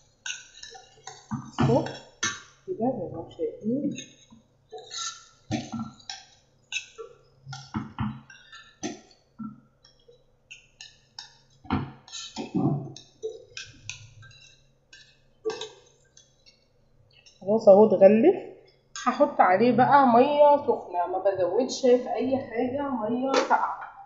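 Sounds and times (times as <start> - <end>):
metal spoon scraping metal pot: 0.2 - 2.4.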